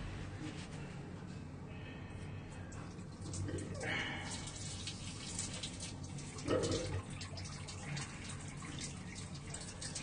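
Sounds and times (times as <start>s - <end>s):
water running and splashing: 3.2s - 10.0s.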